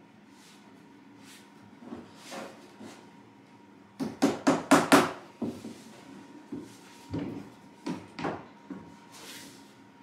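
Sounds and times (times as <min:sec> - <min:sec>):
hammer knocking on wooden door: 0:04.0 - 0:05.6.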